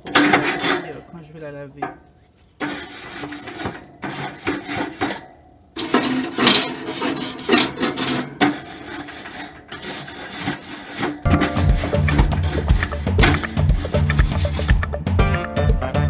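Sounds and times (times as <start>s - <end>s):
metal brush scrubbing grill grate: 0.0s - 1.0s, 2.5s - 14.8s
music: 11.3s - 16.0s.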